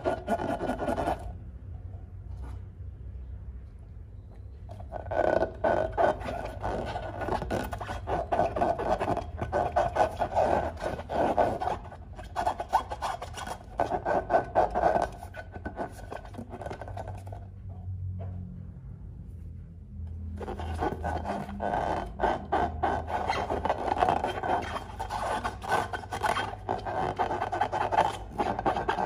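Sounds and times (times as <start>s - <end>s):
hands rubbing a balloon: 0.0s - 1.4s, 4.8s - 17.3s, 20.4s - 29.0s.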